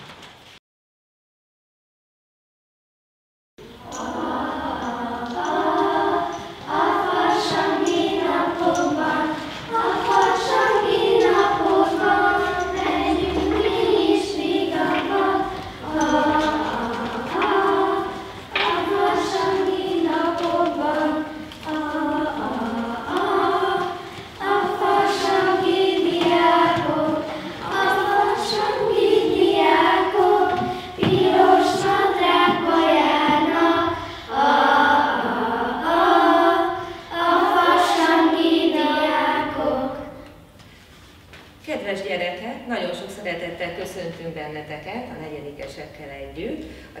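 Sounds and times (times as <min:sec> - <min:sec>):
group singing in chorus: 0:03.6 - 0:40.4.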